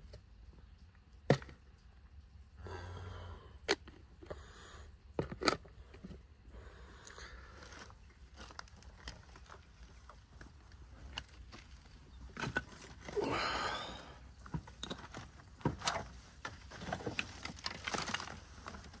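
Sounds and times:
kittens eating clicks and crunches: 3.6s - 13.2s.

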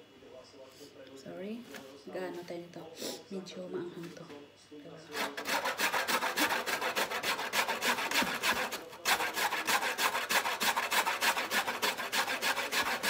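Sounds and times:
root rasping on metal grater: 5.1s - 13.0s.

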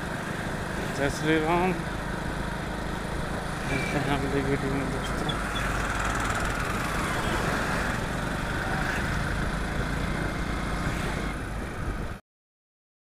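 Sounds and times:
motorcycle engines running: 0.0s - 12.2s
traffic and road noise: 0.0s - 12.2s.

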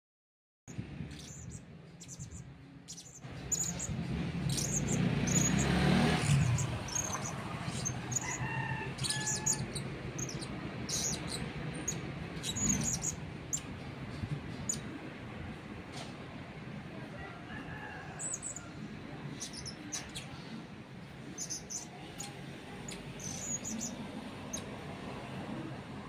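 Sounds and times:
parrot chirping: 1.1s - 13.7s, 19.4s - 20.3s, 21.3s - 24.7s.

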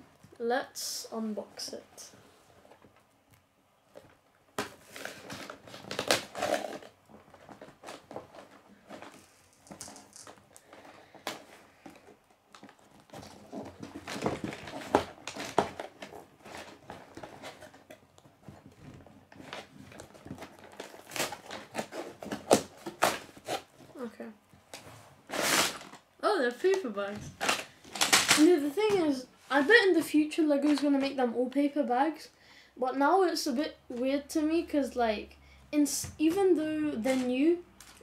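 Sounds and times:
cardboard tearing: 4.8s - 9.3s, 12.6s - 17.9s, 19.3s - 23.7s, 25.3s - 26.0s.

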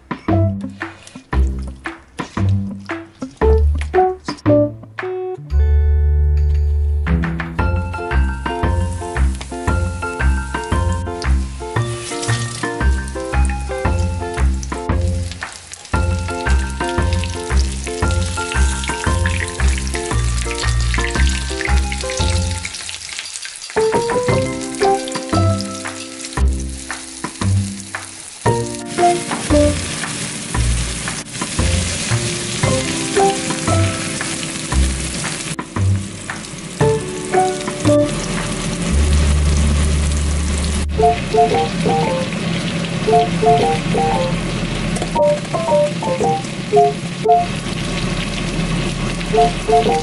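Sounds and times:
chicken frying in hot oil: 0.7s - 4.1s, 7.8s - 50.0s.

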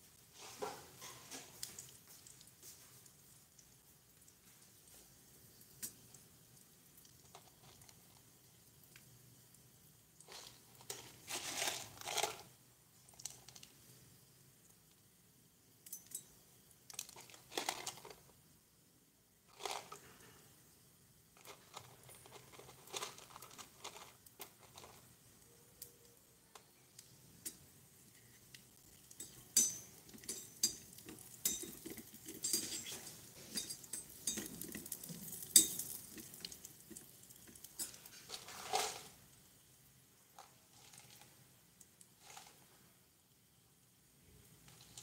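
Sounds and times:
faint sizzle: 0.0s - 45.0s
metal spoon clinking on pot: 15.8s - 16.4s, 29.0s - 36.1s, 37.7s - 38.1s.

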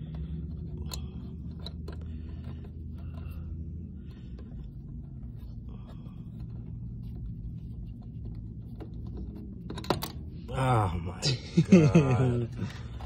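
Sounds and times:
small parts clicking and rustling: 0.0s - 10.4s
low hum: 0.0s - 13.0s.

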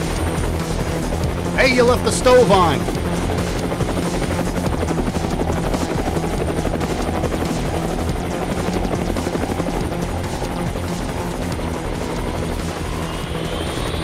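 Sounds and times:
helicopter rotor chopping: 0.0s - 14.0s.

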